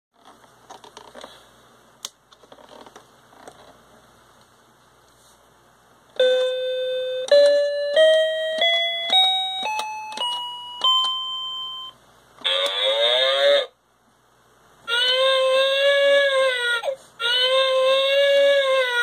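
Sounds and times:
toy keyboard electronic tones: 0:06.2 - 0:13.7
recorded animal call: 0:12.4 - 0:13.8.

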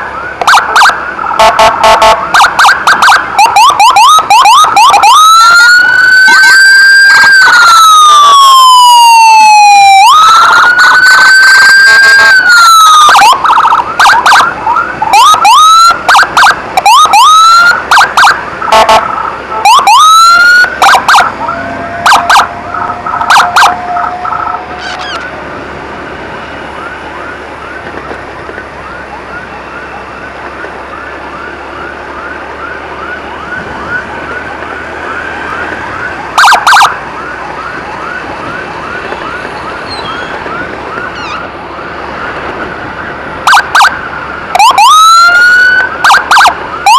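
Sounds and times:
siren short blasts: 0:00.0 - 0:25.2
fast warbling siren: 0:00.0 - 0:25.3, 0:28.8 - 0:41.5, 0:43.4 - 0:46.9
emergency sirens whooping: 0:00.0 - 0:46.9.

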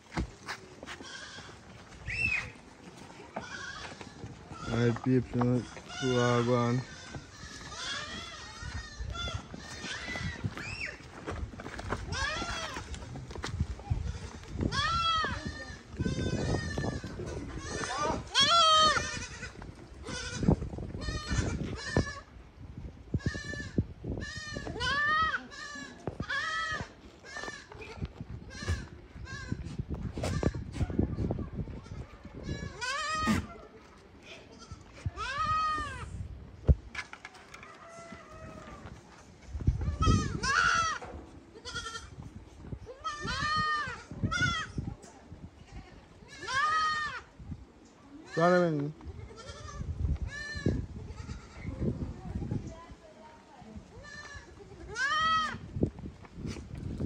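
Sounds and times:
goats bleating: 0:00.9 - 0:01.6, 0:03.3 - 0:10.8, 0:12.1 - 0:13.0, 0:14.0 - 0:22.3, 0:39.9 - 0:41.0, 0:46.2 - 0:47.3, 0:49.1 - 0:51.7, 0:54.0 - 0:55.6.

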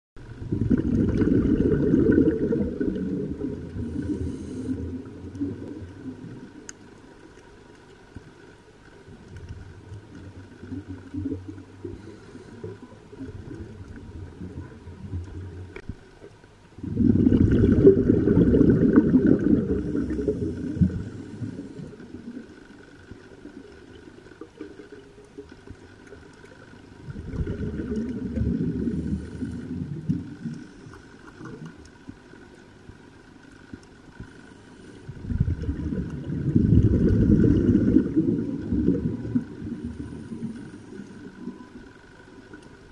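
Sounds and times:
exhaled bubbles rumbling: 0:00.2 - 0:07.3, 0:09.0 - 0:34.4, 0:35.0 - 0:42.9
low background rumble: 0:00.2 - 0:42.9
diver breathing through a regulator: 0:00.6 - 0:05.4, 0:11.8 - 0:13.0, 0:16.8 - 0:22.2, 0:27.5 - 0:31.2, 0:39.6 - 0:41.6.

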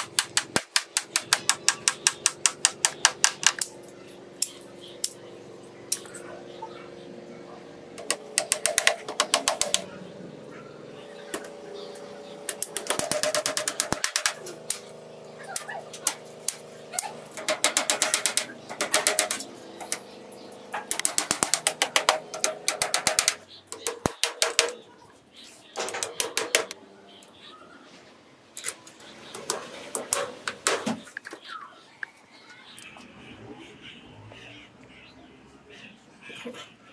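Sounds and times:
hammer tapping on wooden frame: 0:08.0 - 0:09.8, 0:17.4 - 0:19.4, 0:20.9 - 0:24.8, 0:25.9 - 0:26.8.

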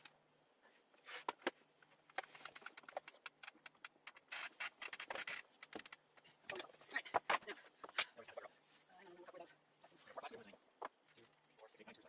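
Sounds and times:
wooden panels clicking and scraping: 0:01.1 - 0:08.1.

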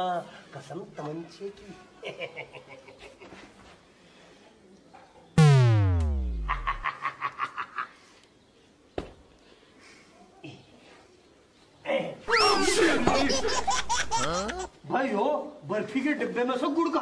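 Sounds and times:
synthetic tone sliding down: 0:05.4 - 0:06.8.

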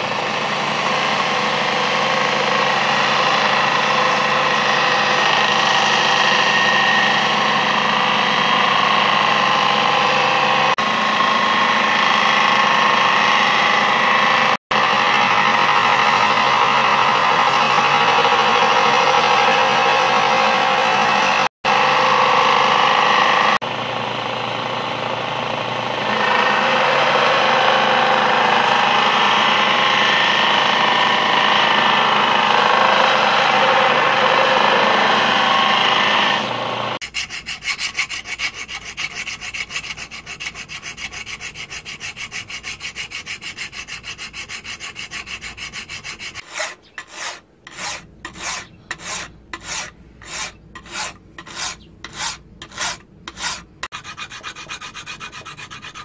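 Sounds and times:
belt grinder grinding steel: 0:26.0 - 0:56.0
hand file rasping on metal: 0:37.0 - 0:56.0.

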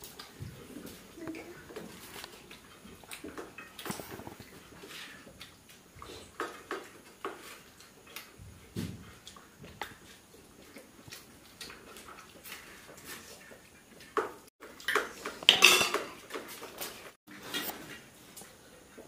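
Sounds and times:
wet smacks and chewing: 0:01.7 - 0:15.5.

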